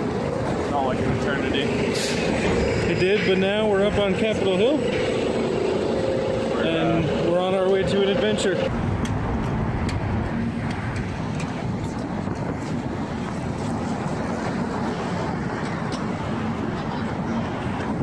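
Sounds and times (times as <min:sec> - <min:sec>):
traffic rumble: 0:00.0 - 0:18.0
wind buffeting microphone: 0:08.7 - 0:18.0.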